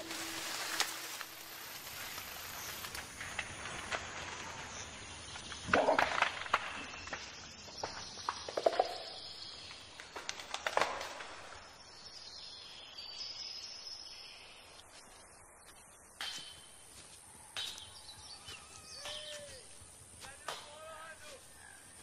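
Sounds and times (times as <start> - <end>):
light hiss: 0.0 - 5.6
faint high bird calls: 16.2 - 19.8.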